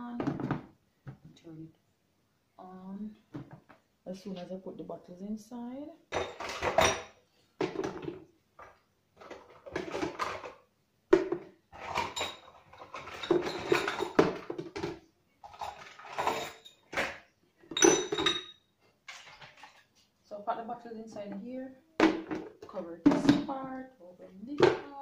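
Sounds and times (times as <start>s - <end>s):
plastic bottles clattering: 0.1s - 1.2s, 6.1s - 18.5s, 19.1s - 19.9s, 22.0s - 23.8s, 24.4s - 25.0s.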